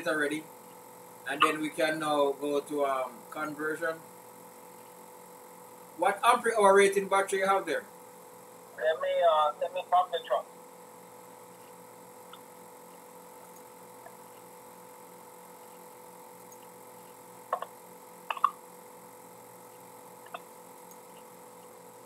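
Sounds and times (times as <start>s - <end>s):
steady electrical hum: 0.0s - 22.0s
computer mouse clicking: 16.4s - 17.7s, 18.3s - 18.6s, 20.2s - 21.3s.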